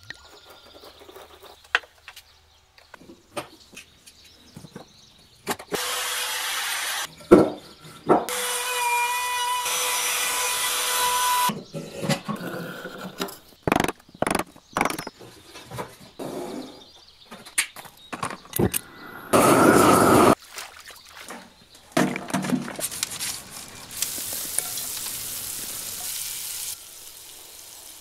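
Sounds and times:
woodworking power tool whining: 5.8s - 7.1s, 8.3s - 11.5s, 19.3s - 20.4s
wooden pieces knocking: 13.6s - 15.2s.

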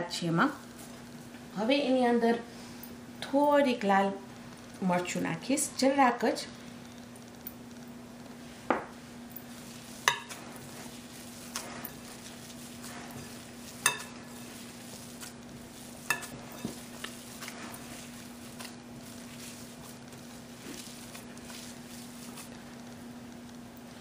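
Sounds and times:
potatoes squishing and stirring: 8.5s - 24.0s.

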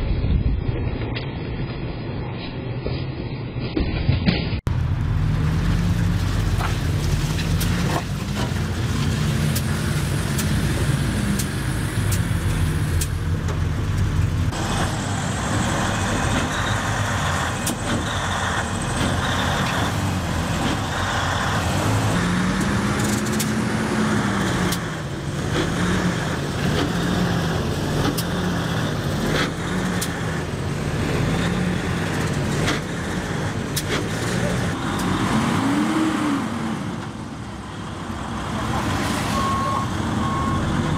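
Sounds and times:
truck engines revving under load: 4.7s - 40.9s
sharp clicks: 23.0s - 23.6s.

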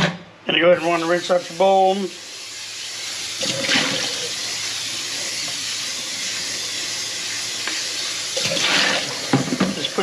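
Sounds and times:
bowl being rinsed: 0.8s - 10.0s
tap running: 8.4s - 10.0s.

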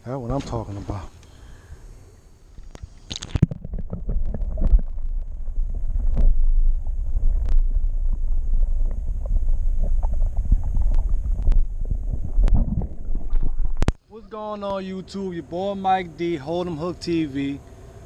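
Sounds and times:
muffled underwater rumble: 0.0s - 18.0s
underwater knocks: 3.1s - 14.0s.

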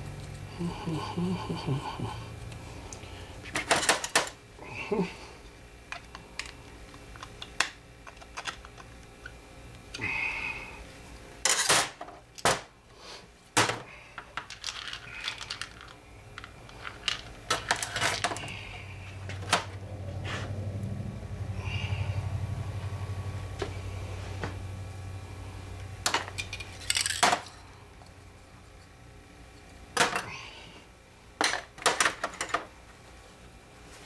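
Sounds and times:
metal parts clattering on a workbench: 3.5s - 4.4s, 11.4s - 12.6s, 13.6s - 18.5s, 26.0s - 27.7s, 31.4s - 32.7s.

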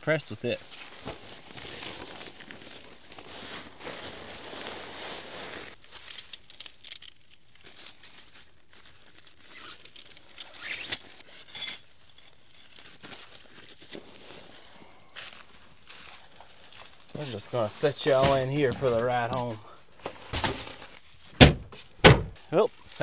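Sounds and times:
nylon fabric rustling: 0.7s - 6.4s, 7.2s - 14.7s.

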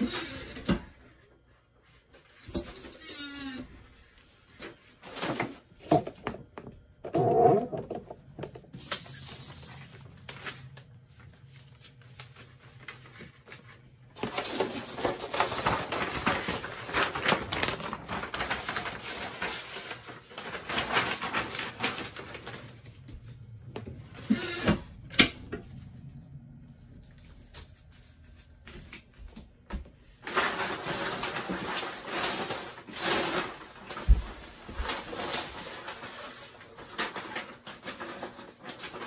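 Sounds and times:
paper rustling and crinkling: 4.1s - 6.3s, 8.4s - 25.0s, 26.6s - 39.0s.

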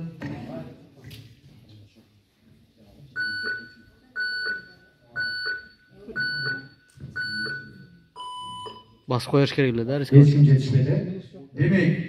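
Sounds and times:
countdown timer beeps: 3.2s - 9.1s.

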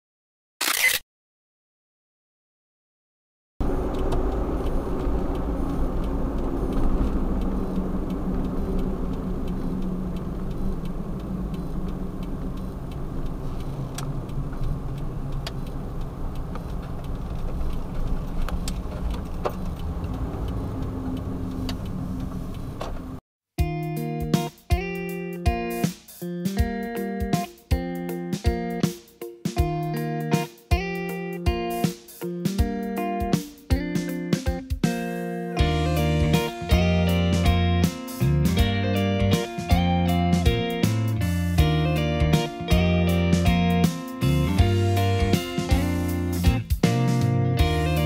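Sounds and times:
van engine and road rumble: 3.6s - 23.2s, 35.6s - 48.0s
faint irregular clicks: 3.8s - 22.7s.

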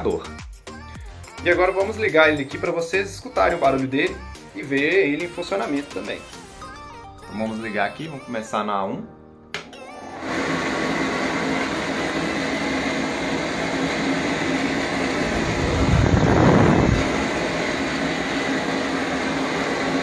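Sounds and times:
pet dryer blower running: 10.1s - 20.0s.

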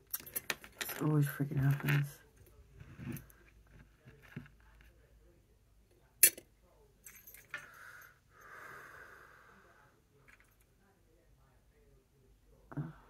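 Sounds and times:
soft breathy hiss: 7.5s - 10.2s.

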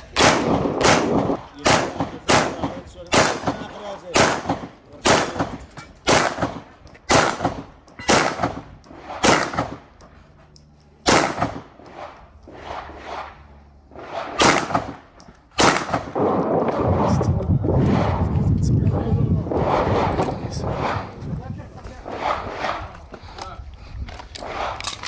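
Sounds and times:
pistol shots: 0.1s - 9.8s, 11.0s - 11.8s, 14.0s - 16.8s.

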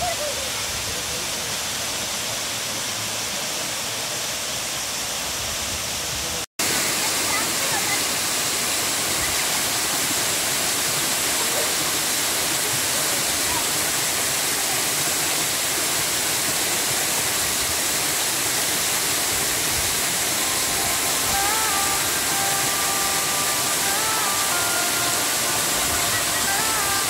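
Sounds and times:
waterfall rushing onto rocks: 0.0s - 27.0s
held music notes: 19.8s - 27.0s.

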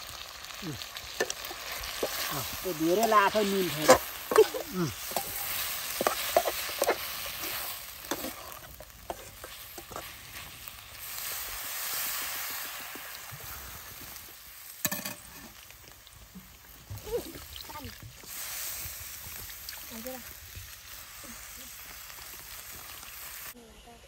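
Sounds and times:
curry sizzling in a pan: 0.0s - 24.0s
spoon scraping and clinking pan: 3.0s - 10.2s.

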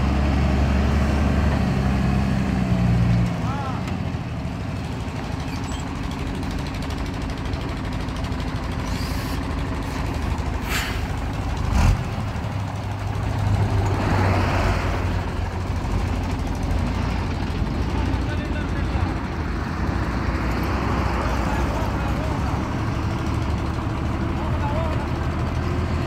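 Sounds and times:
truck diesel engine: 0.0s - 26.0s
air brakes hissing: 8.8s - 10.0s, 10.6s - 11.2s.

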